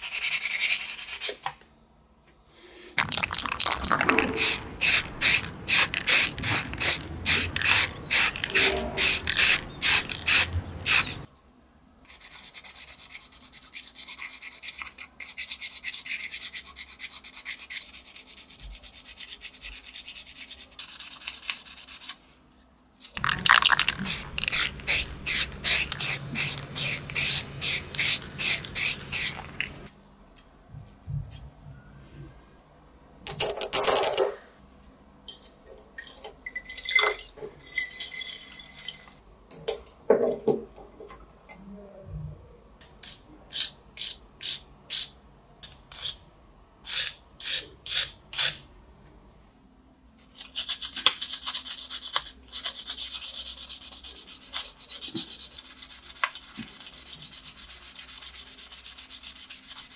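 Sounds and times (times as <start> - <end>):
sandpaper rubbing on metal: 4.9 - 11.2, 50.5 - 59.9.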